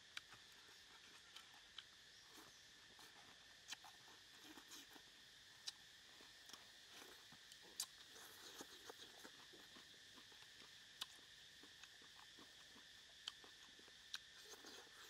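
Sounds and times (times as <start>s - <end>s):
quiet chewing: 0.0s - 15.0s.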